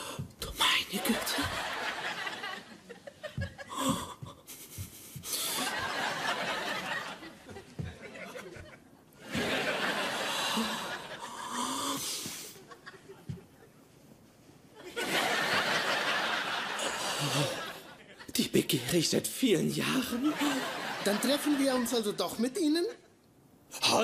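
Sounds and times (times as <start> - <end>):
studio audience laughing: 1.0 - 3.8, 5.5 - 11.4, 14.8 - 18.3, 20.0 - 22.2.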